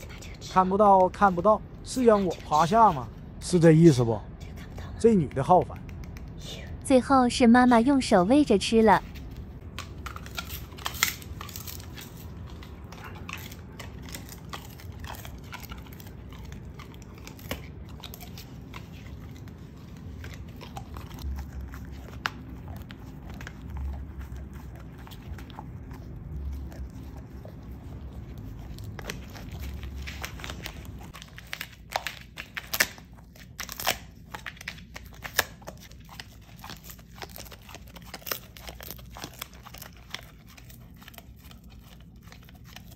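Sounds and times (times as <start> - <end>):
puppy crunching a chew: 9.0 - 42.9.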